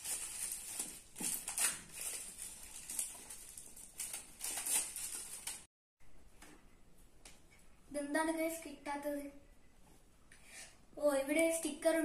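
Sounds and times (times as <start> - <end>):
plastic wrap crinkling: 0.0 - 5.7.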